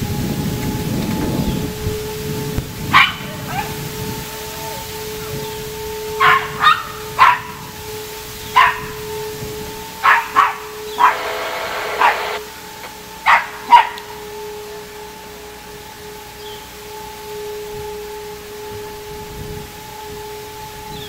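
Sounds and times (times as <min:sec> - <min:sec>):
warning siren steady tone: 0:00.0 - 0:21.0
small dog barking: 0:02.9 - 0:03.8, 0:06.2 - 0:07.6, 0:08.6 - 0:09.0, 0:10.0 - 0:12.4, 0:13.2 - 0:14.1.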